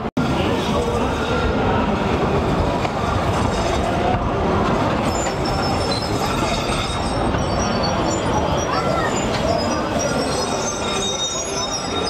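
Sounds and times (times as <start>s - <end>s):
tram wheels on rails: 0.0s - 12.0s
high wheel squeals: 4.9s - 12.0s.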